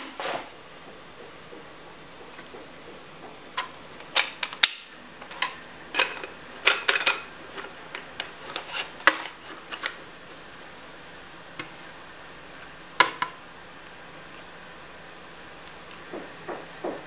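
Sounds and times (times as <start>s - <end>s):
hard plastic parts clicking: 3.5s - 10.0s.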